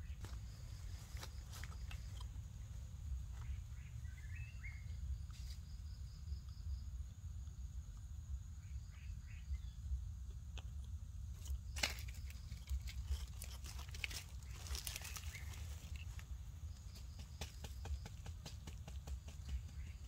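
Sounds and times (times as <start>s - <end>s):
insects buzzing: 0.0s - 20.0s
leaves rustling and crackling: 11.3s - 16.9s.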